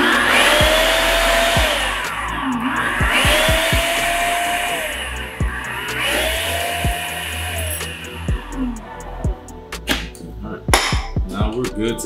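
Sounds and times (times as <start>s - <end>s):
food processor whirring: 0.0s - 8.5s.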